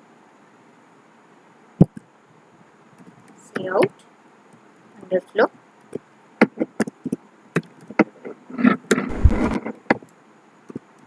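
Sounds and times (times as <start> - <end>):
rustling thump with low rumble: 9.1 - 9.6.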